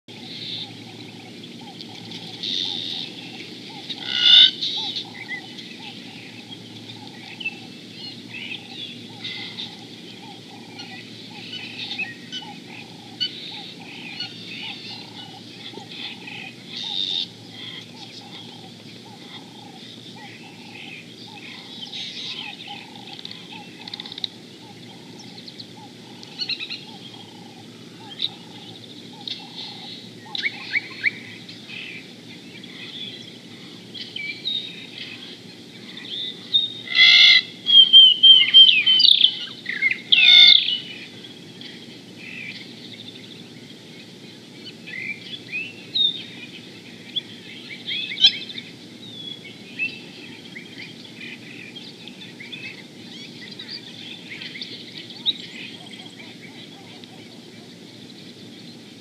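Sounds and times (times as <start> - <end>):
birds chirping and calling: 0.1 - 59.0
steady low hiss: 0.1 - 59.0
quick downward-sweeping bird calls: 1.7 - 5.4.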